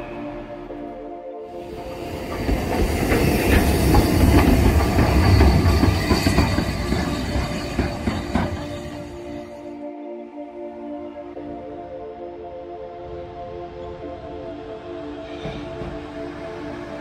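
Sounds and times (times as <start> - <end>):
steam locomotive rumbling past: 1.5 - 9.7, 13.2 - 17.0
wheels clicking over rail joints: 1.8 - 9.1.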